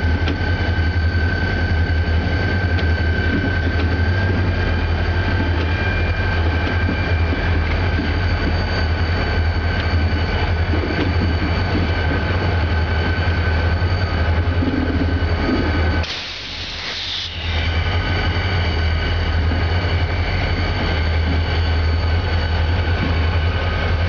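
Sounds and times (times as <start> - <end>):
diesel locomotive engine drone: 0.0 - 24.0
short hiss: 16.0 - 17.8.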